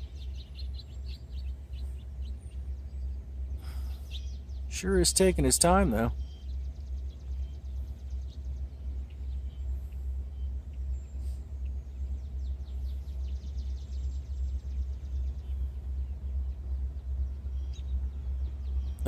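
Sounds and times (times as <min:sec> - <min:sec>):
bird trilling: 0:00.0 - 0:19.0
steady low rumble: 0:00.0 - 0:19.0.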